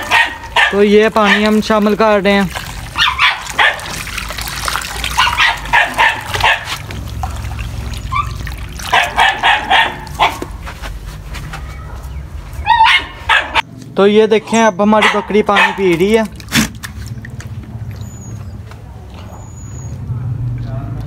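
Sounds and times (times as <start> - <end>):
dog barking: 0.0 - 1.6, 3.0 - 4.0, 5.1 - 6.8, 8.1 - 10.5, 12.7 - 13.6, 15.0 - 15.9
water from hose running into pan: 1.5 - 9.2.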